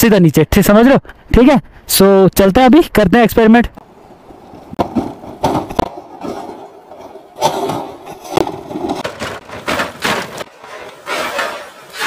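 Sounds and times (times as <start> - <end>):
scooter crashing down rocky slope: 4.6 - 12.0.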